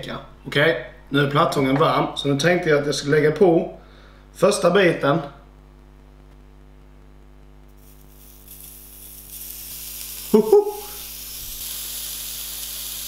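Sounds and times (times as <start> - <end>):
steady low hum: 0.0 - 13.0
bacon sizzling: 7.7 - 13.0
man exclaiming: 10.3 - 11.0.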